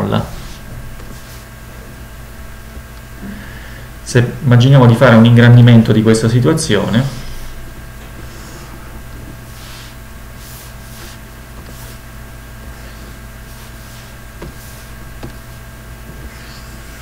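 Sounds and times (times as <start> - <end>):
soft brushing sounds: 0.0 - 3.1, 6.9 - 17.0
low electrical hum: 0.0 - 17.0.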